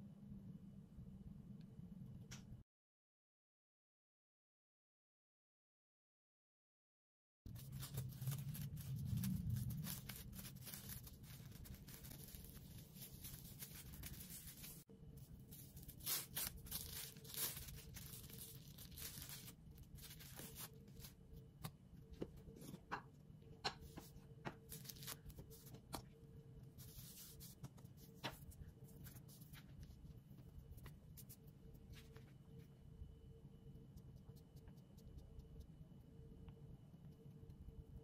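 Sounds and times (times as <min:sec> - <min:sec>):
plastic cling film crinkling: 0:07.5 - 0:21.2, 0:24.6 - 0:25.7.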